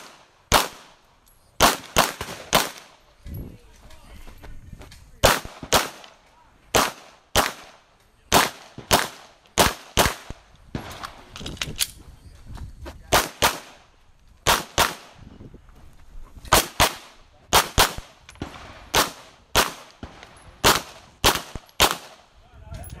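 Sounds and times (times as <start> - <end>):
pistol shots echoing: 0.0 - 1.0, 1.6 - 2.9, 5.2 - 11.1, 14.4 - 15.2, 16.5 - 22.2.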